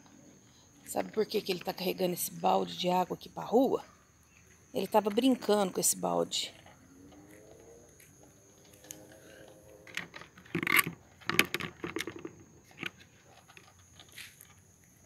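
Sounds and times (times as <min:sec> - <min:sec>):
plastic bucket clinking on concrete: 0:09.9 - 0:13.7.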